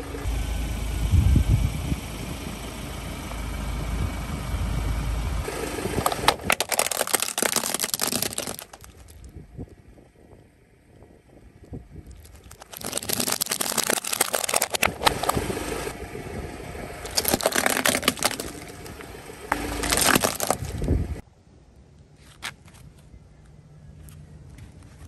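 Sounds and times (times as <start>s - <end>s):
plastic toy cracking under tyre: 5.9s - 9.4s, 12.1s - 15.5s, 17.0s - 20.9s.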